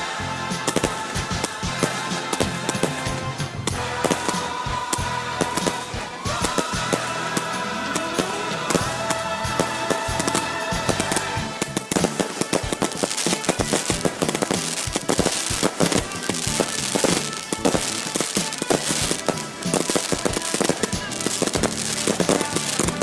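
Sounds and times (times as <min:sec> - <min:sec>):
fireworks bangs and crackling: 0:00.0 - 0:23.0.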